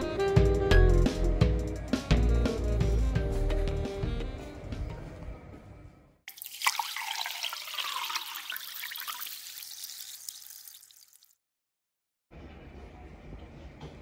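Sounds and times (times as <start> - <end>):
liquid pouring and fizzing: 6.3 - 11.4.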